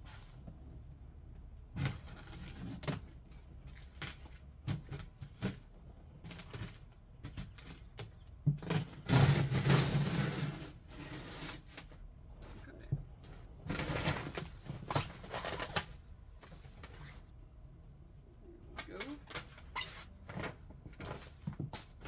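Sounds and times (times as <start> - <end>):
cardboard box scraping and rustling: 1.8 - 5.6, 8.6 - 11.9.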